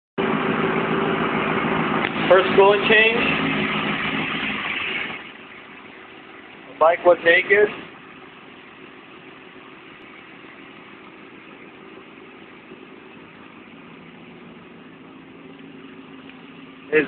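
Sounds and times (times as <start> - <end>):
motor humming steadily: 0.2 - 17.0.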